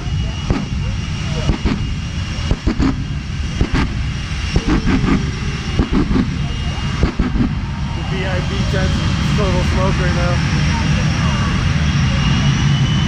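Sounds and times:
jet engine rumble: 0.0s - 13.0s
afterburner crackling pops: 0.4s - 7.7s.

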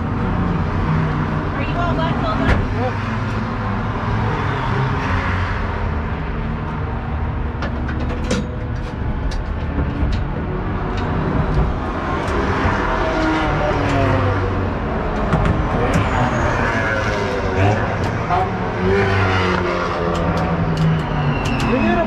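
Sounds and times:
race car engines droning: 0.0s - 22.0s
sharp clicks and knocks: 7.5s - 13.0s, 15.1s - 16.2s, 19.5s - 21.8s.

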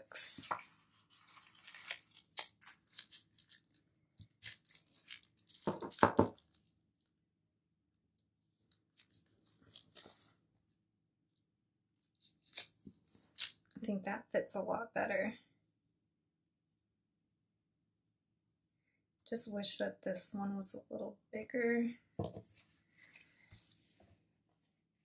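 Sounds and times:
paper stickers peeling and rustling: 0.5s - 6.7s.

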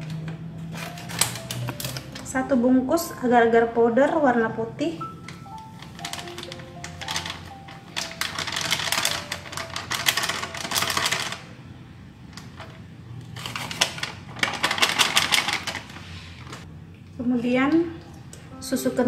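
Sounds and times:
plastic packet crackling: 5.0s - 11.6s, 12.4s - 16.6s.

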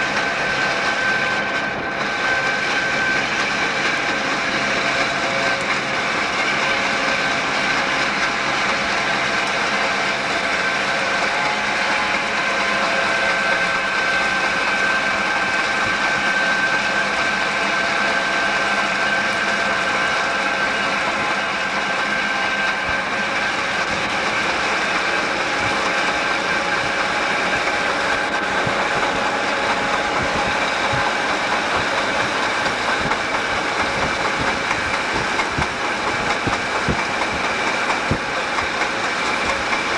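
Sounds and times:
diesel locomotive engine drone: 0.0s - 39.9s
wind: 0.0s - 39.9s
road noise: 22.4s - 39.9s.

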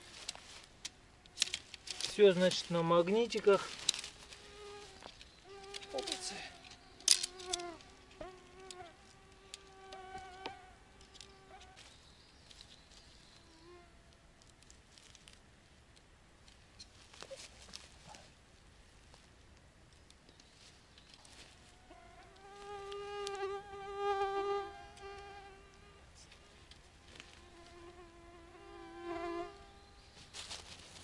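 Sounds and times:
tent parts clicking and rustling: 0.0s - 8.8s, 9.4s - 13.1s, 14.4s - 15.4s, 16.0s - 18.3s, 30.2s - 31.0s
insect buzzing: 3.8s - 11.9s, 13.2s - 14.0s, 21.7s - 30.3s.

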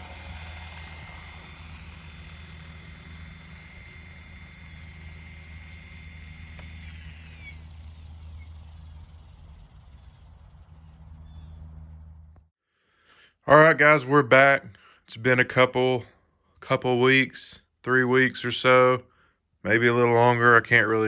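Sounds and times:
helicopter rotor hum: 0.0s - 12.4s
high motor and gear whine: 0.0s - 12.5s.

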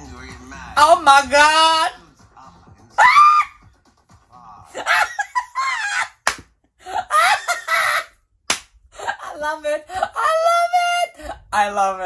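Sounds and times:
man laughing hard: 4.7s - 6.2s, 6.8s - 8.2s
hand clap: 6.2s - 6.5s, 8.5s - 8.8s.

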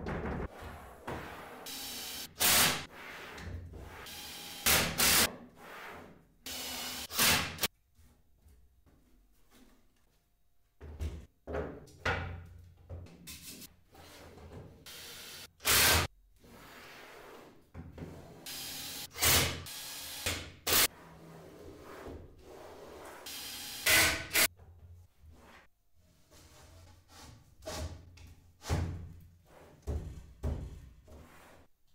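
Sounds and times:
wooden panels knocking and scraping: 27.6s - 31.3s.

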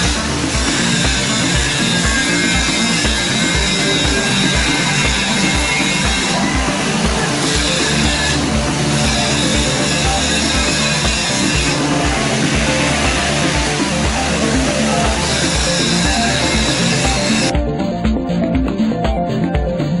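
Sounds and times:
driving drum beat: 0.0s - 20.0s
rock music: 0.0s - 20.0s.

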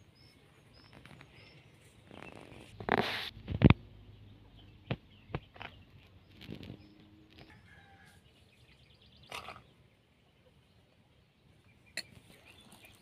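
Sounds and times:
faint bird chirps: 0.0s - 2.9s.

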